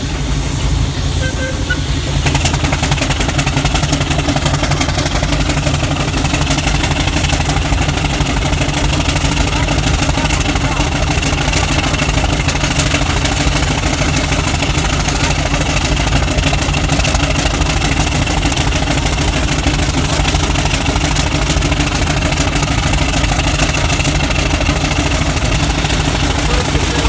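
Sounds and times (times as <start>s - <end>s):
steam engine mechanical rumble: 0.0s - 27.0s.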